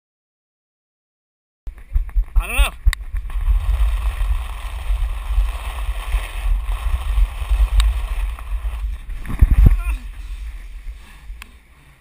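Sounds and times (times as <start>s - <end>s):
wind rumble on microphone: 1.7s - 12.0s
water splashing on plastic sheet: 3.0s - 9.7s.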